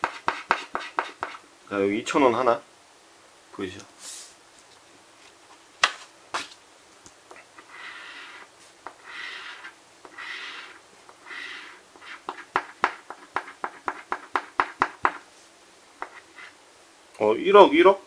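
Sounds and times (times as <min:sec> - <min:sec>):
coin scratching lottery ticket: 0:07.6 - 0:12.4.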